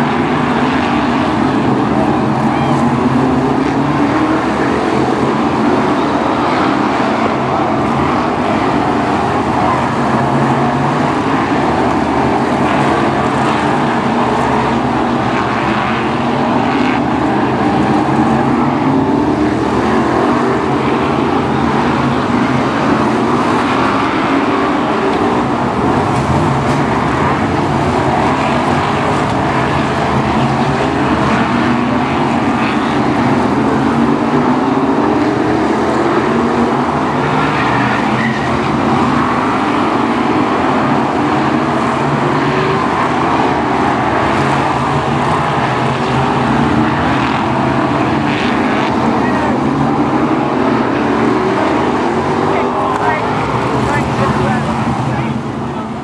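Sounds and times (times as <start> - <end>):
race car engines racing past: 0.0 - 56.0.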